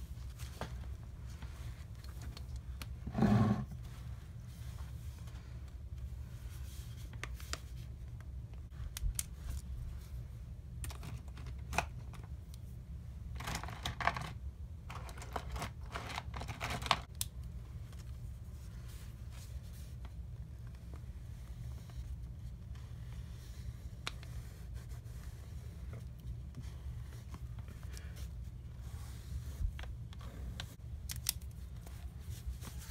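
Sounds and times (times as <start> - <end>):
steady low hum: 17.1 - 32.9.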